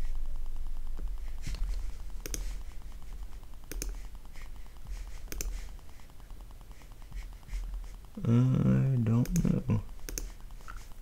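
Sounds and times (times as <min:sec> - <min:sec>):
faint low hum: 0:00.0 - 0:11.0
faint ticks: 0:00.9 - 0:08.2, 0:09.2 - 0:10.9
computer mouse clicks: 0:01.0 - 0:02.7, 0:03.6 - 0:04.4, 0:05.0 - 0:07.4, 0:09.2 - 0:10.9.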